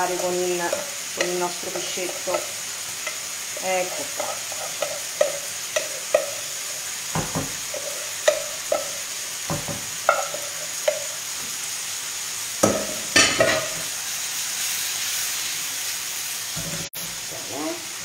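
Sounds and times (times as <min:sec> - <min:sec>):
food sizzling in a frying pan: 0:00.0 - 0:18.0
utensil knocking against pan: 0:04.1 - 0:06.5, 0:07.1 - 0:11.1, 0:12.6 - 0:13.7
pan clattering and scraping: 0:12.7 - 0:13.9.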